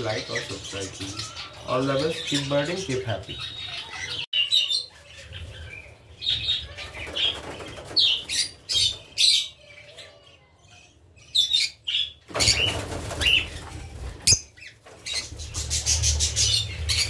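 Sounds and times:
wings flapping: 0:06.7 - 0:09.1, 0:12.3 - 0:17.0.

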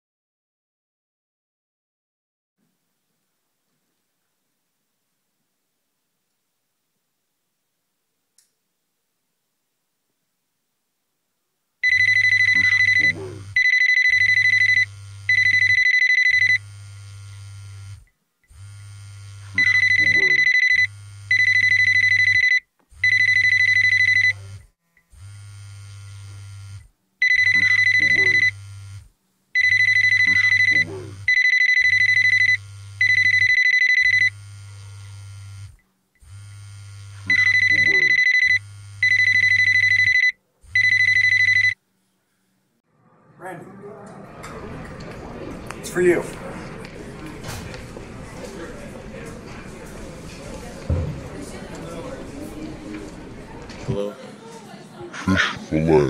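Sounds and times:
phone ringtone beeps: 0:11.8 - 0:16.6, 0:19.6 - 0:24.5, 0:27.2 - 0:28.6, 0:29.6 - 0:34.4, 0:37.3 - 0:41.8
low buzz: 0:14.2 - 0:15.6, 0:16.3 - 0:21.4, 0:24.4 - 0:29.1, 0:32.0 - 0:33.4, 0:34.0 - 0:39.2.

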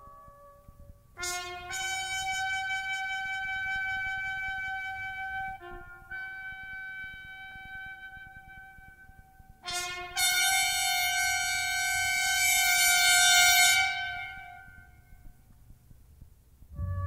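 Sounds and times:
soft woodwind note: 0:16.7 - 0:17.0
falling run of notes: 0:16.8 - 0:17.0.

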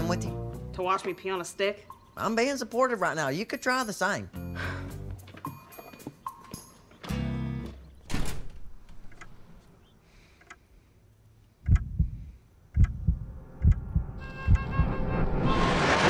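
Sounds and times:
door shutting: 0:07.0 - 0:09.6
heartbeat thumps: 0:11.6 - 0:14.8.

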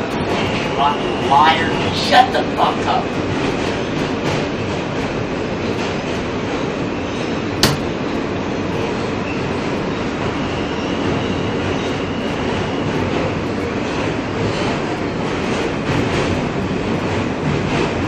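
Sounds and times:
subway wheels rumbling on track: 0:00.0 - 0:18.0
sharp click: 0:07.6 - 0:07.9.

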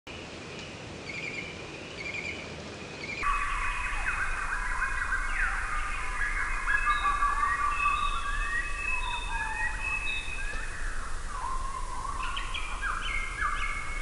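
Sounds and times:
birds chirping: 0:03.0 - 0:14.0
chorus of whistling bird calls: 0:03.0 - 0:14.0.

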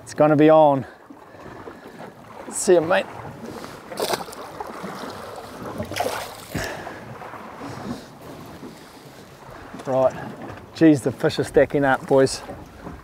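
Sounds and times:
water slopping against boat hull: 0:00.0 - 0:13.0
short splash: 0:01.8 - 0:08.9.

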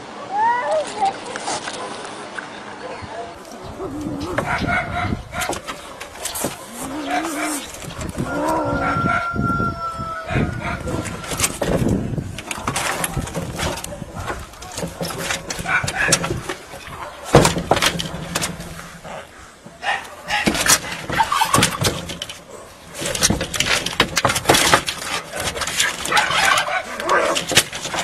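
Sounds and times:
scuffling on metal roof: 0:03.3 - 0:28.0
cats yowling and screeching: 0:06.4 - 0:11.8.

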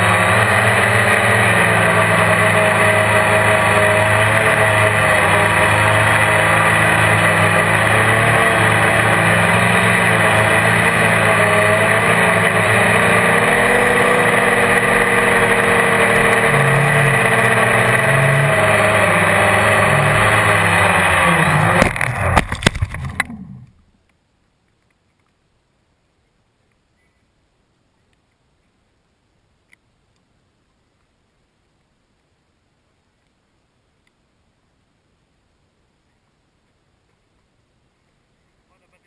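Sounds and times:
quadcopter motors whining: 0:00.0 - 0:22.4
crackles and knocks: 0:21.7 - 0:25.4.

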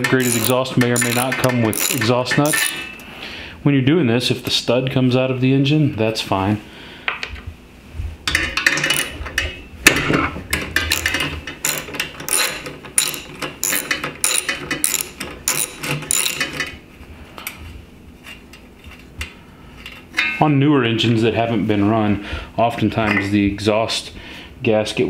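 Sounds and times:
ratchet wrench clicking: 0:00.0 - 0:02.9, 0:10.9 - 0:16.6.

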